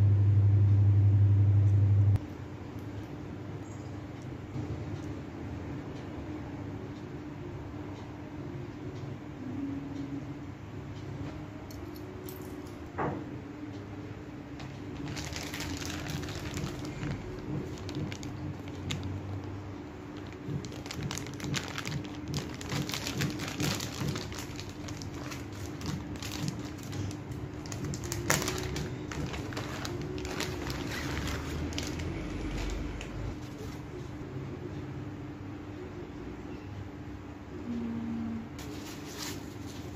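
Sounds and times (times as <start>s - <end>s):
faint steady hum: 0.0s - 39.9s
plastic packaging crinkling: 14.6s - 19.6s, 20.2s - 33.8s.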